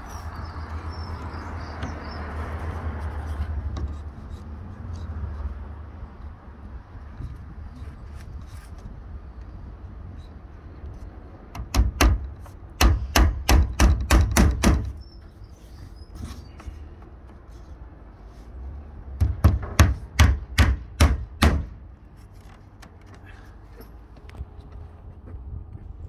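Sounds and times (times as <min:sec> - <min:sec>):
hammer driving nails into wood: 0:11.5 - 0:15.0, 0:19.2 - 0:21.8.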